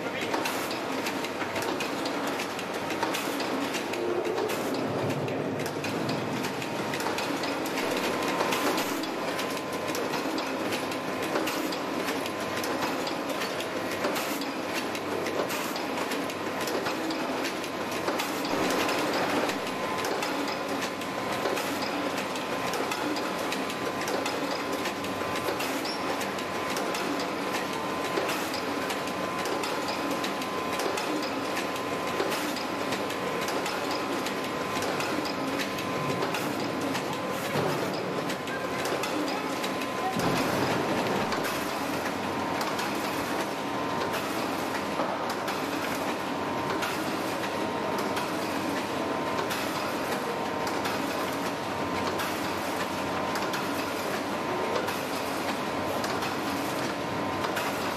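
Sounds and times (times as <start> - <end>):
machine clattering: 32.9 - 43.2.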